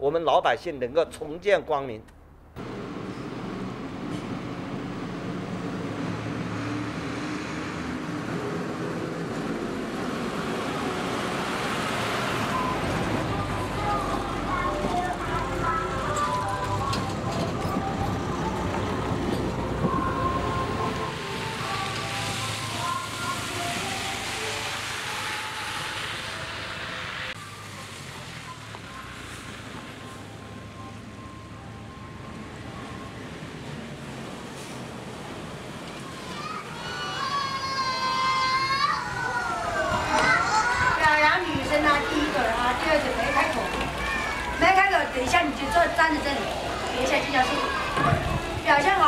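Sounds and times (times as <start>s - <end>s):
vehicles driving past: 0.0s - 49.0s
dump truck diesel engine: 2.4s - 37.5s.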